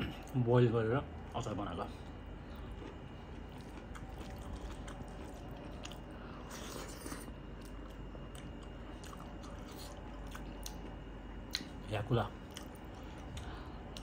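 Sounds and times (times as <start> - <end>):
close chewing: 2.4 - 11.8, 12.4 - 14.0.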